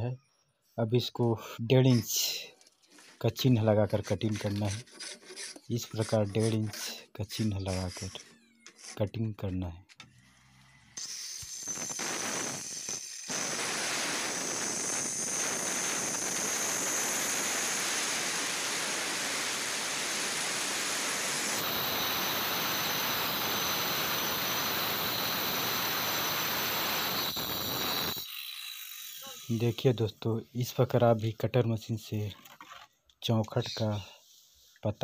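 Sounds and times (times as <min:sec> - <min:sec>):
circular saw cutting wood: 0:01.9 - 0:09.1, 0:10.1 - 0:30.0.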